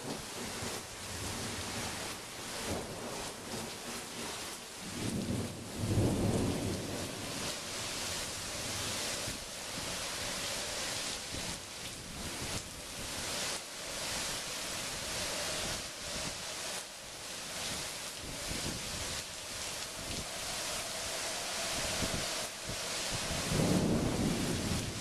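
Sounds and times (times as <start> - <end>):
heavy rain hissing: 0.0 - 25.0
wind: 0.0 - 25.0
thunder rumbling: 20.0 - 25.0.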